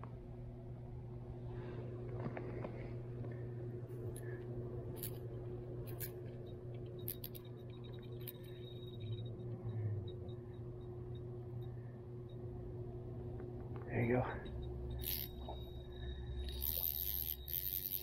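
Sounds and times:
quiet steady hum: 0.0 - 18.0
fishing reel clicks: 5.0 - 7.5, 14.9 - 15.6, 16.4 - 18.0.

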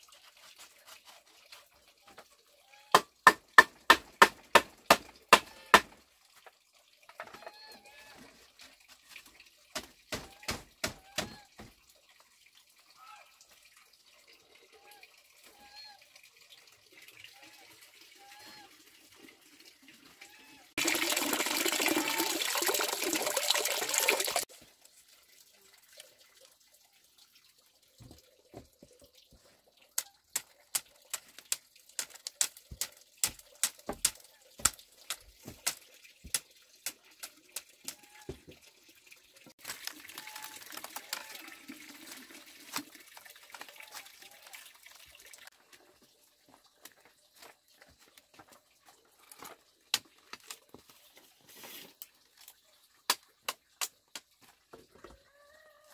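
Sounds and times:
machete chopping bamboo: 3.0 - 6.0, 9.8 - 11.4.

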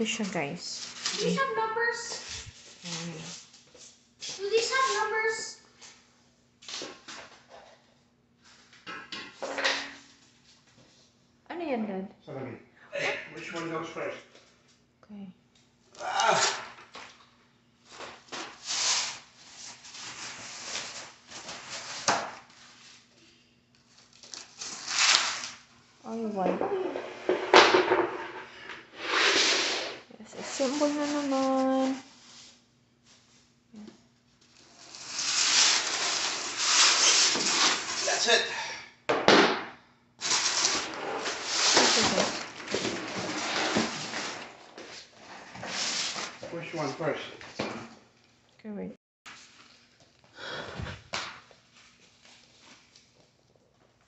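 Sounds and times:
packing sheet rustling and crinkling: 0.8 - 1.5, 17.9 - 23.0, 30.4 - 32.6, 34.5 - 38.3, 40.2 - 47.0
cardboard box scraping and rustling: 40.3 - 46.4.

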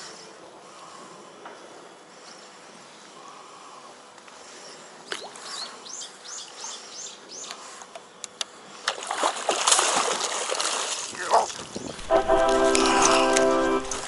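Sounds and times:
fish splashing in water: 8.8 - 11.8.

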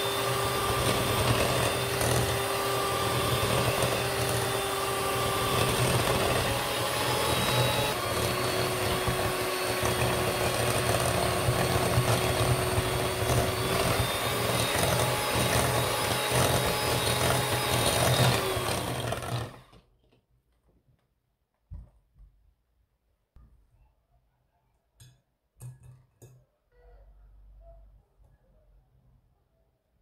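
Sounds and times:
electric hand mixer whisking batter: 0.0 - 19.8.

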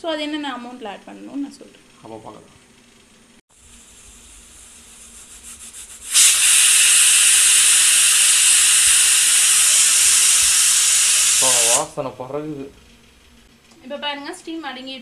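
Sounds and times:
pressure cooker steam hissing: 3.6 - 12.0.

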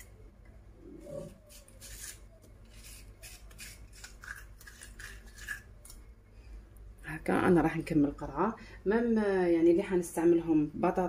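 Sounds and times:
corer scraping a courgette: 1.0 - 5.7.

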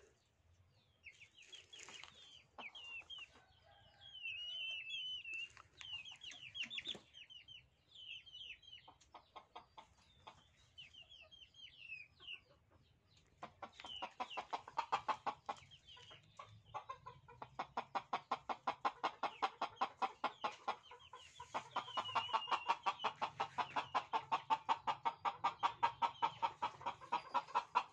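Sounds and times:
faint high chirping: 0.0 - 9.2, 20.5 - 23.7
rooster clucking: 13.3 - 27.9.

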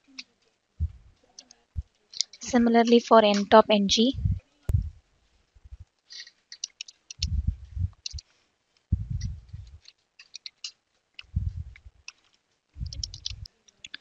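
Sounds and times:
low muffled bumps: 0.8 - 1.2, 4.1 - 5.0, 5.6 - 5.8, 7.2 - 8.2, 8.9 - 9.8, 11.2 - 12.0, 12.8 - 13.5
keyboard key clicks: 12.9 - 13.5.

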